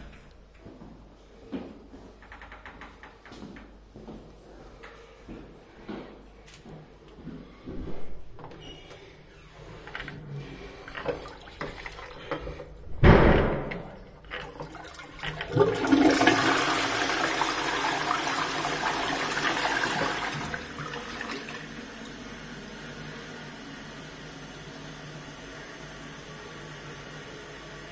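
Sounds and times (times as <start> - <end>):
toilet flushing: 9.5 - 27.9
water rushing into bowl: 14.2 - 21.8.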